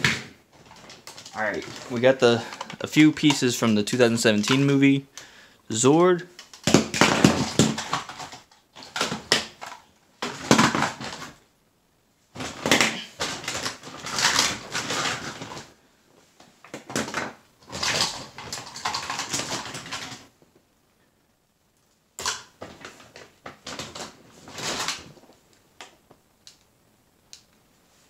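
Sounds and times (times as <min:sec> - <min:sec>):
plastic toys clattering: 0:00.0 - 0:04.9, 0:06.4 - 0:11.4, 0:12.4 - 0:15.7, 0:16.6 - 0:20.4, 0:22.2 - 0:26.0.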